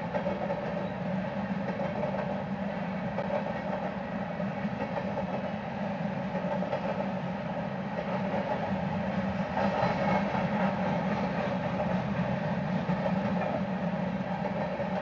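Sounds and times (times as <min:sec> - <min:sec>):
freight train rolling past: 0:00.0 - 0:15.0.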